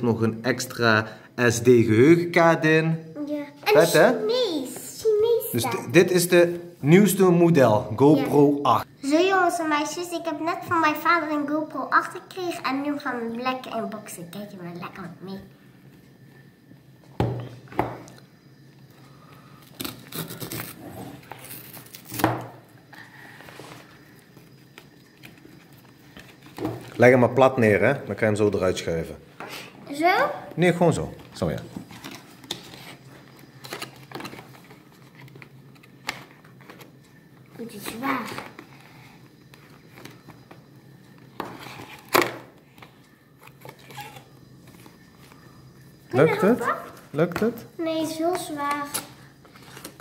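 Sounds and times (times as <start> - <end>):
packaging tearing: 19.6 - 22.3.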